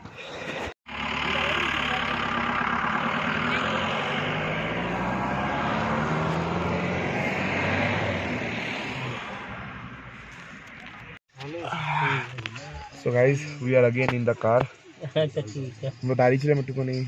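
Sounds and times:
road and wind noise: 0:00.0 - 0:11.6
vehicle engine hum: 0:00.1 - 0:13.6.

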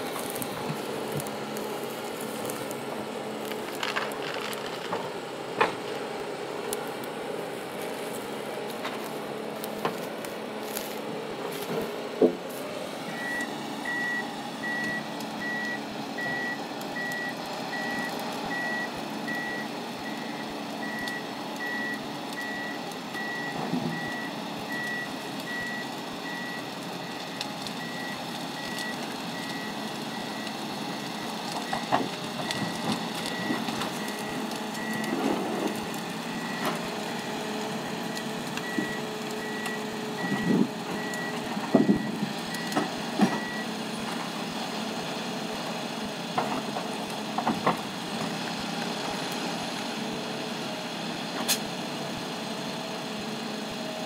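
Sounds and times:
engine running: 0:00.0 - 0:54.0
log crane clunks: 0:00.1 - 0:06.1, 0:11.4 - 0:16.4, 0:20.9 - 0:25.6, 0:31.2 - 0:44.4, 0:46.2 - 0:49.2.

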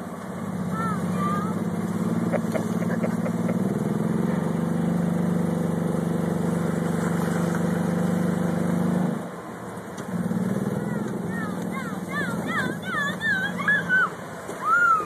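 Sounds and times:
small engine running: 0:00.0 - 0:09.2.

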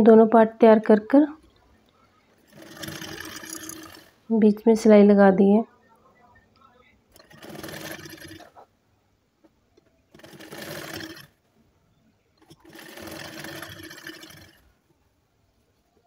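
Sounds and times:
sewing machine stitching: 0:02.4 - 0:04.1, 0:07.1 - 0:08.6, 0:10.1 - 0:11.4, 0:12.4 - 0:14.7.

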